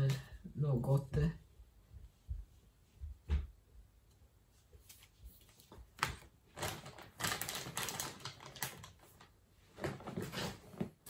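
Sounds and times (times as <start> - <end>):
plastic bag crinkling: 6.0 - 10.8.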